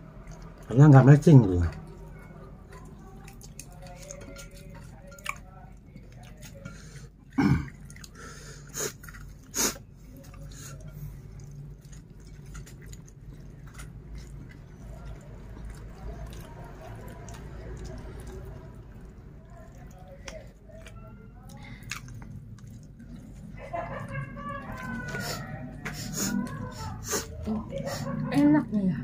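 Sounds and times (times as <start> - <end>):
man chewing: 0.0 - 28.3.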